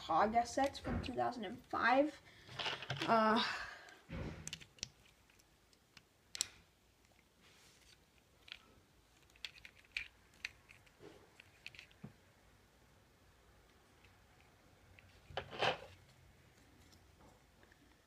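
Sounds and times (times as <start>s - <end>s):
plastic pieces clicking: 3.9s - 7.3s, 7.9s - 12.0s.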